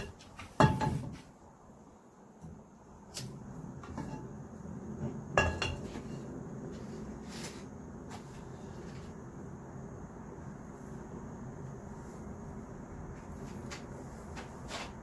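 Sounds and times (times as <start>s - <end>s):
cookware clinking and knocking: 0.0s - 1.2s, 5.3s - 6.0s
low background noise: 0.0s - 15.0s.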